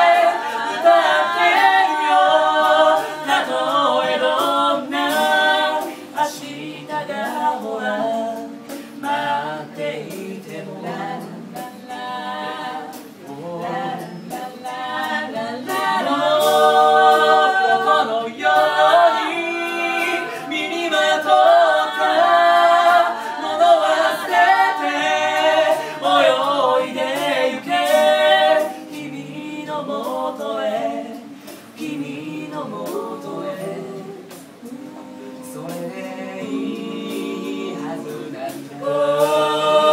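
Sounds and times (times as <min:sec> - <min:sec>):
group singing a cappella: 0:00.0 - 0:39.9.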